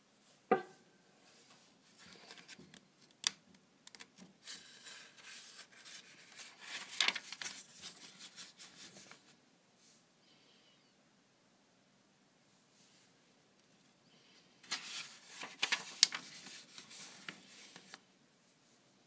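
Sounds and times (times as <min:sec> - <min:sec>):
paper pages rustling and crinkling: 0:01.4 - 0:03.2, 0:03.9 - 0:09.4, 0:14.6 - 0:18.0.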